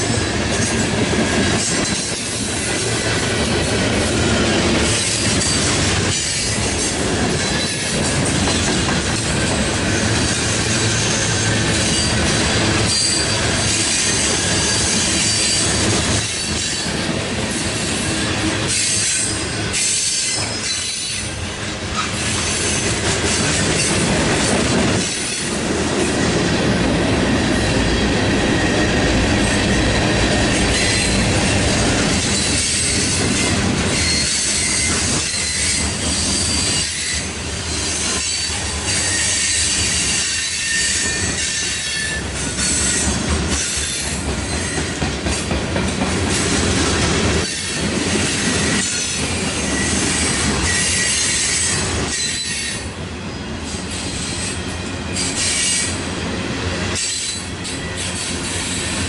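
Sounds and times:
steel wheels rumbling on rails: 0.0 - 59.0
wheels clacking over rail joints: 0.1 - 17.3.

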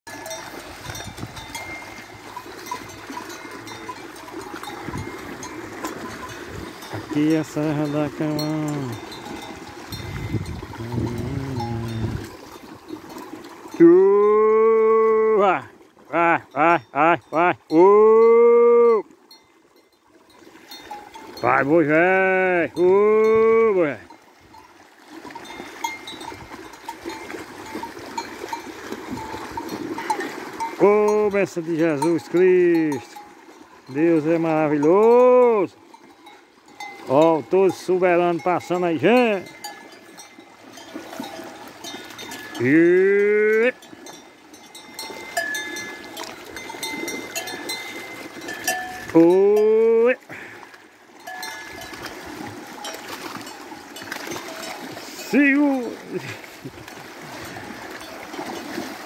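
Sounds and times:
cowbells clinking: 0.0 - 58.8
cattle splashing through water: 0.0 - 59.0
cow bells clanking: 0.0 - 59.0.

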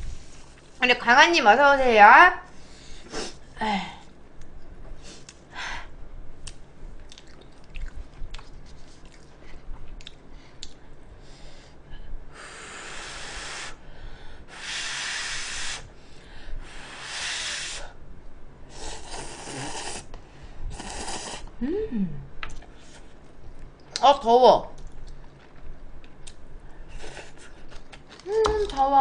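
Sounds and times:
person chewing: 6.4 - 10.8
slurping noodles: 18.7 - 20.1, 20.7 - 21.5.

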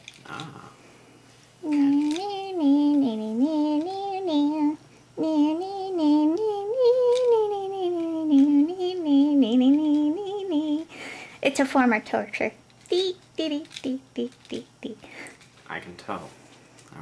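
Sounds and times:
woman singing wordless tune: 1.6 - 10.9, 12.9 - 15.1.

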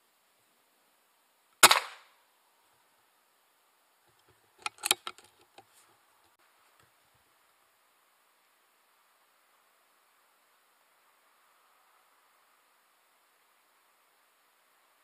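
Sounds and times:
air rifle shot: 1.6 - 2.1.

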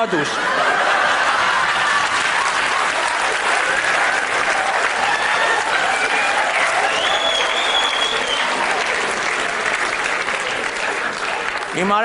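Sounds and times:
audience laughter: 0.0 - 4.2
audience applauding: 0.0 - 12.0.

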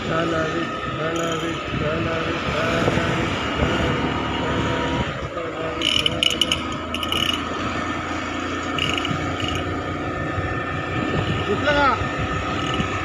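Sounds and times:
motorcycle engine riding: 0.0 - 13.0
rapid rattling clicks: 5.8 - 7.5, 8.8 - 9.7.

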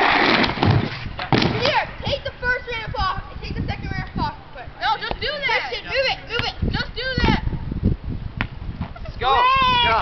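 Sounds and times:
person yelling: 9.2 - 10.0.

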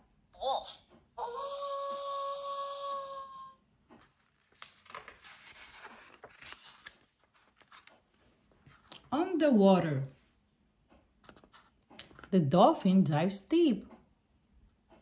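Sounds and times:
paper page turning: 3.9 - 9.1, 11.2 - 12.4.

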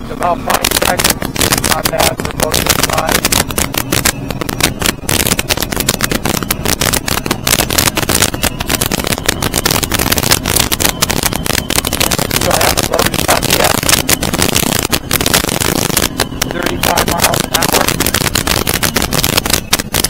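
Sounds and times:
boat engine water and wind rush: 0.0 - 20.0.

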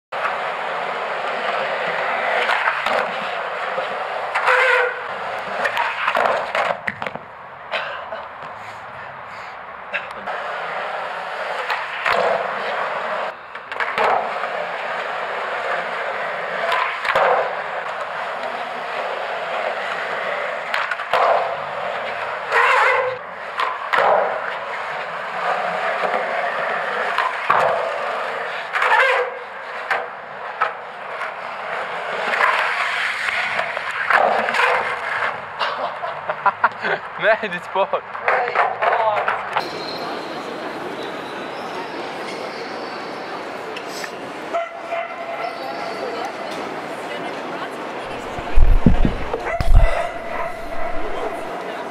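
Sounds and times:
skateboard wheels rolling on concrete: 0.1 - 51.9
skateboard hitting ground: 0.2 - 7.3, 10.3 - 18.6, 19.4 - 35.4, 48.1 - 51.6.

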